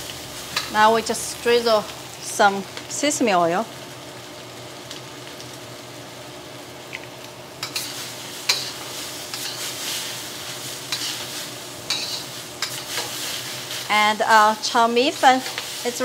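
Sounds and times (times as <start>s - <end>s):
noodles sizzling in a wok: 0.0s - 16.0s
metal spatula scraping a wok: 7.6s - 13.9s.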